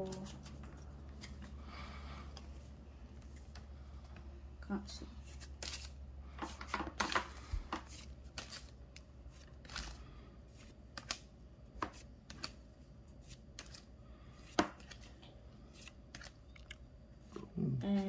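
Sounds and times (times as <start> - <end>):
trading cards clicking and flicking: 10.9 - 12.6.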